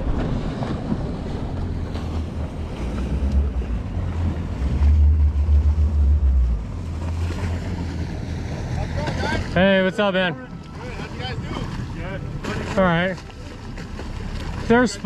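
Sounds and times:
wind buffeting microphone: 0.0s - 8.6s
open sea washing: 0.0s - 15.0s.

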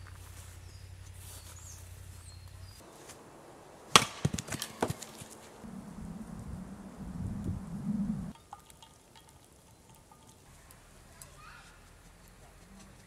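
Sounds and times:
axe striking log: 3.9s - 5.4s.

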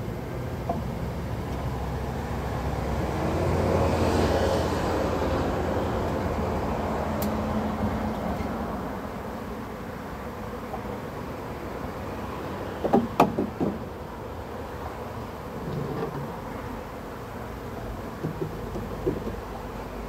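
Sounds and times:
honeybees buzzing: 0.0s - 20.0s
heavy lorry passing: 1.4s - 9.1s.

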